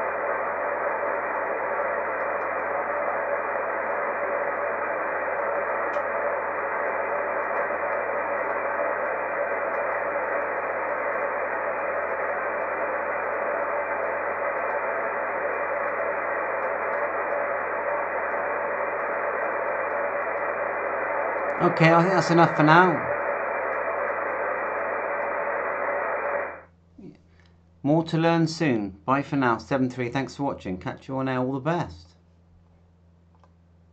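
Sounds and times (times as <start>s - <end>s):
radio static hiss: 0.0s - 27.2s.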